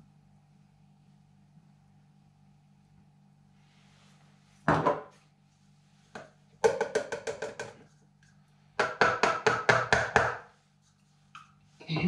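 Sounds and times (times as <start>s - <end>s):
plastic cup tapping on tub rim: 6.2s - 7.8s.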